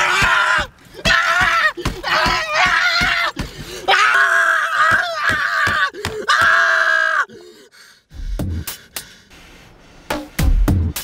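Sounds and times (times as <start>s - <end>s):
man screaming: 0.0s - 7.3s.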